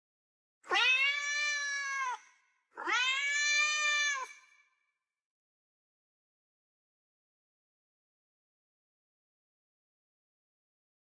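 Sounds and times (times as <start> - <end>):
cat meowing: 0.7 - 4.4.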